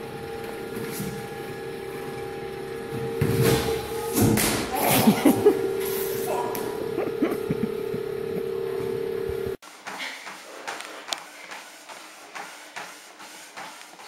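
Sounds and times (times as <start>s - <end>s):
treadmill motor whining: 0.0s - 14.0s.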